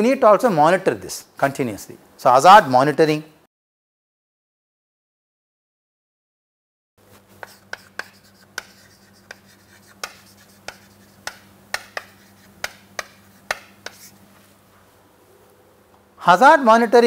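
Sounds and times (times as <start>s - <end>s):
chalk tapping and scraping on board: 7.1s - 14.4s.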